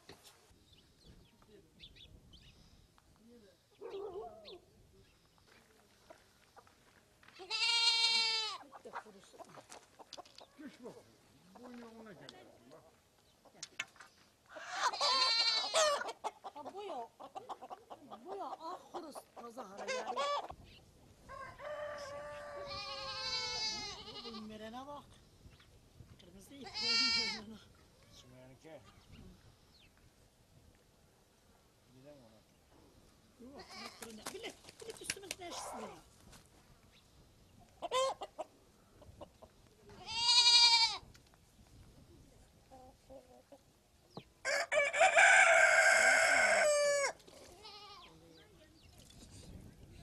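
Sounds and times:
rooster crowing: 0:21.3 - 0:23.3, 0:44.4 - 0:47.2.

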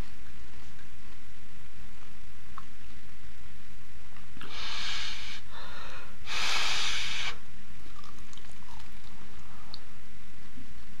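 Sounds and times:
person breathing hard through nose: 0:04.4 - 0:07.4.

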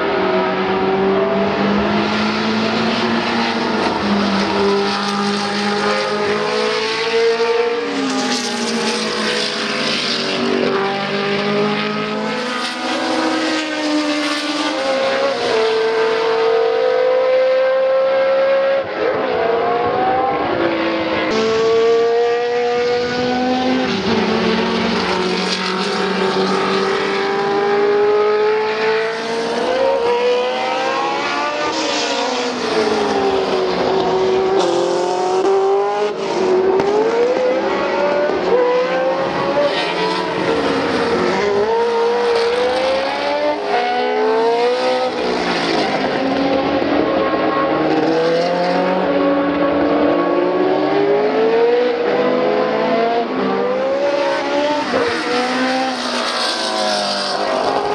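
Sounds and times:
racing car engines passing: 0:00.0 - 0:57.9.

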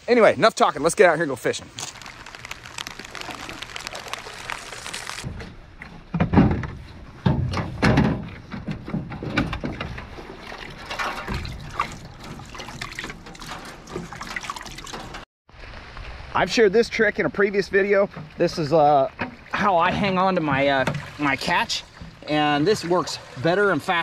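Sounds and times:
water sloshing in plastic bucket: 0:01.8 - 0:05.3, 0:08.5 - 0:15.2, 0:19.2 - 0:23.6.

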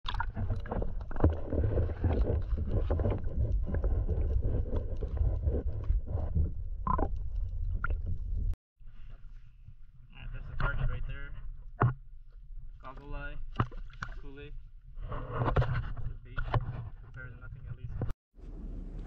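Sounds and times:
muffled water sloshing: 0:00.0 - 0:17.1
small clicks underwater: 0:00.1 - 0:08.6.

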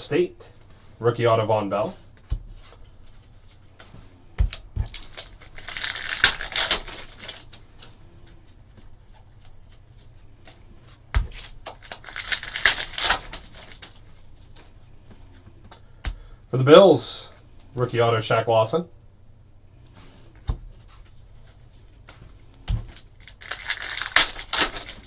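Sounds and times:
plastic wrapper crinkling: 0:04.9 - 0:08.0, 0:11.3 - 0:14.6, 0:22.9 - 0:25.0.

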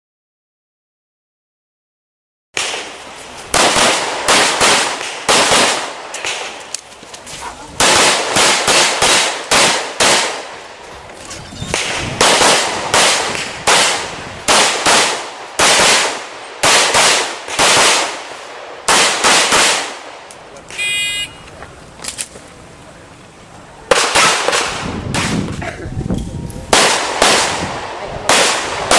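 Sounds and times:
pistol shots: 0:03.5 - 0:06.6, 0:07.8 - 0:10.6, 0:11.7 - 0:18.2, 0:18.8 - 0:20.1, 0:23.9 - 0:25.5, 0:26.7 - 0:28.9.

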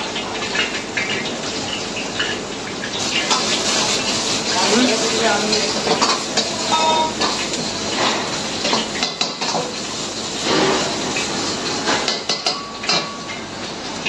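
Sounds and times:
gas burner rushing: 0:03.0 - 0:12.1
metal ladle clanging on wok: 0:05.5 - 0:07.4.

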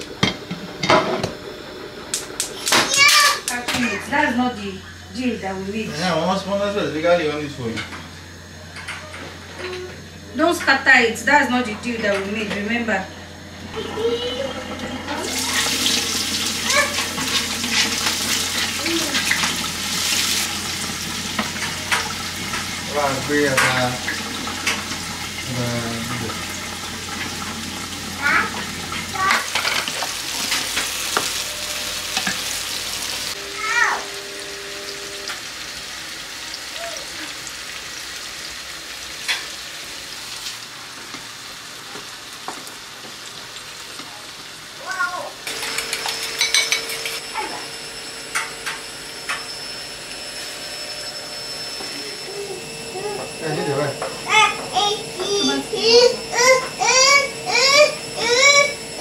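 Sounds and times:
food sizzling in a pan: 0:02.2 - 0:59.0
short high voice sounds: 0:33.4 - 0:34.1.

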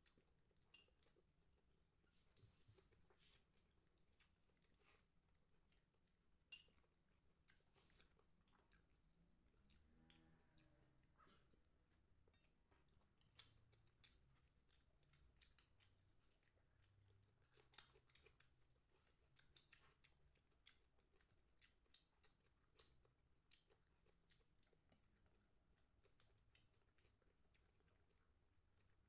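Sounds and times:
chewing mouths smacking: 0:07.3 - 0:29.0.

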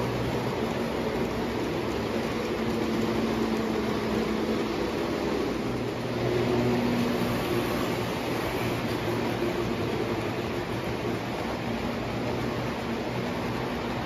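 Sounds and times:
model train wheels whirring: 0:00.0 - 0:14.0.

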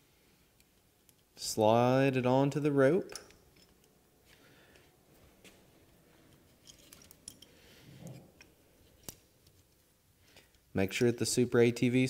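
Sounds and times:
faint clicks and handling noise: 0:00.5 - 0:01.4, 0:03.1 - 0:11.2.

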